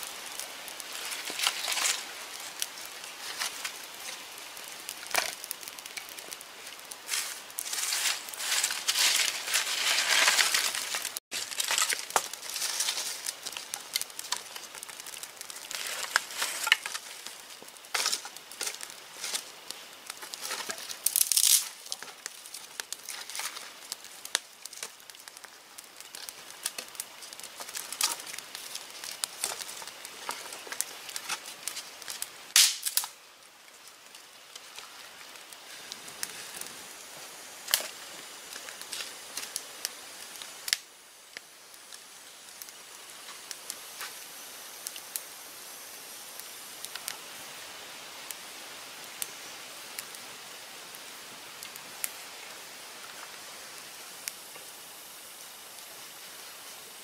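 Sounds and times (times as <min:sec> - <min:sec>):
twigs snapping and crackling: 0:00.2 - 0:36.7, 0:37.6 - 0:44.2
debris rustling: 0:00.8 - 0:39.5.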